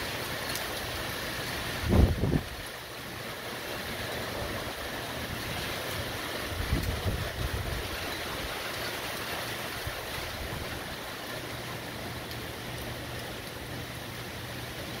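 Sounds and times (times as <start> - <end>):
heavy rain: 0.0 - 15.0
strong wind: 1.1 - 2.8, 4.0 - 11.0.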